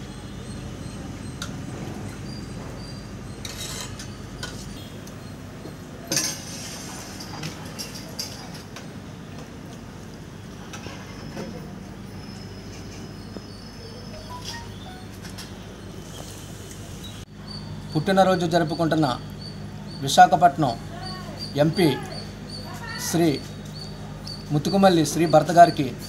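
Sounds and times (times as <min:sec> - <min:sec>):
ladle clinking on steel pots: 0:06.1 - 0:08.6.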